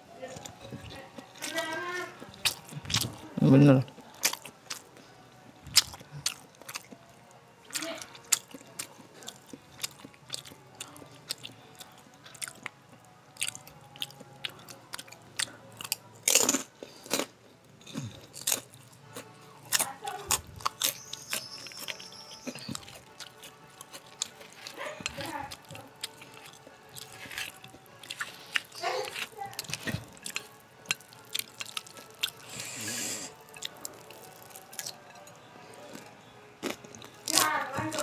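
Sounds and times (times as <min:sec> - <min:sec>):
wet chewing: 0:00.2 - 0:38.0
crackers crunching: 0:00.4 - 0:38.0.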